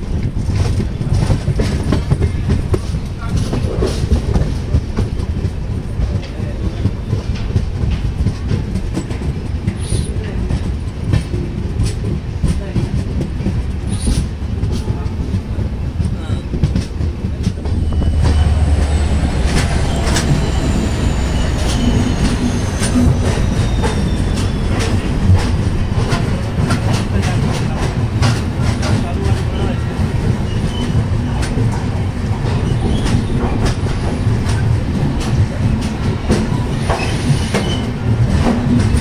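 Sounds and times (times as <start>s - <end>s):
train wheels clattering over rail joints: 0.0s - 39.0s
faint high squeal: 17.6s - 25.5s.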